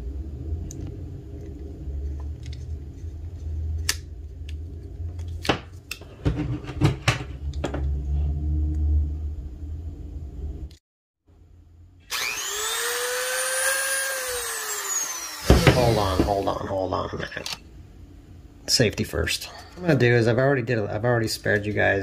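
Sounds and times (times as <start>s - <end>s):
steady low rumble: 0.0s - 10.8s.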